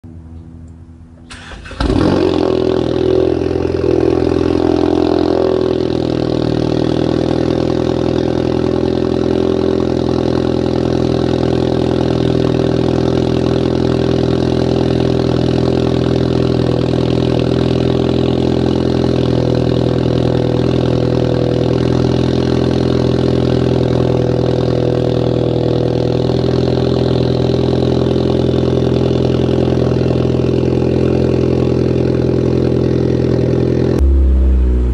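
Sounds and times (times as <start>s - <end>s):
car engine fast idle: 1.2s - 2.9s
car engine cold start: 1.2s - 4.7s.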